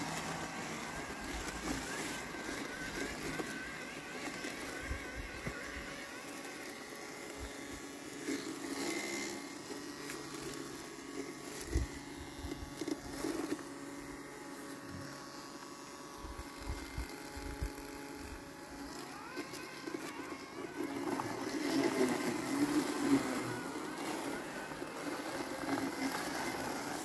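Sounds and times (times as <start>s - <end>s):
robotic lawn mower humming: 0.0s - 27.0s.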